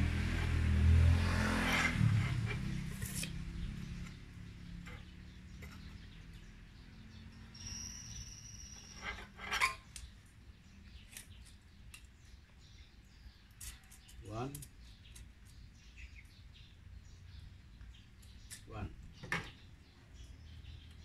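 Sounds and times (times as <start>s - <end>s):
thin high ring: 7.5s - 9.8s.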